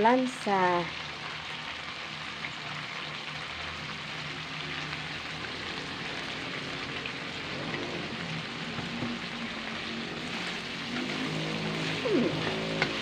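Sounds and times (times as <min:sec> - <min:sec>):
meat sizzling in a wok: 0:00.0 - 0:13.0.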